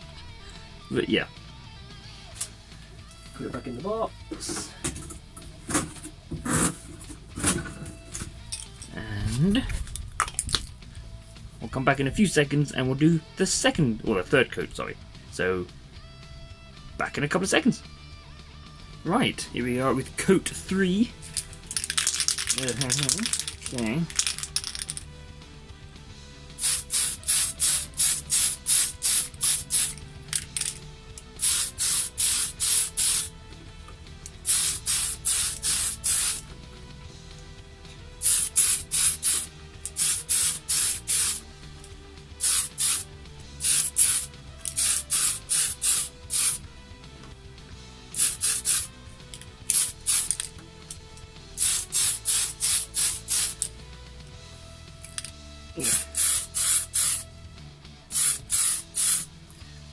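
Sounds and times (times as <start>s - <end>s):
aerosol spray can hissing: 26.6s - 33.4s, 34.4s - 36.5s, 38.2s - 41.5s, 42.4s - 46.6s, 48.2s - 48.9s, 49.7s - 50.5s, 51.6s - 53.7s, 55.8s - 57.2s, 58.1s - 59.3s.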